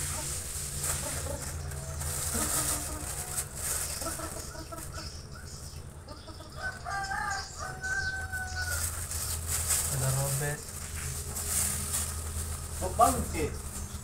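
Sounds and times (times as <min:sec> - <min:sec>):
rooster clucking: 0:00.0 - 0:09.2
rooster crowing: 0:06.2 - 0:09.2.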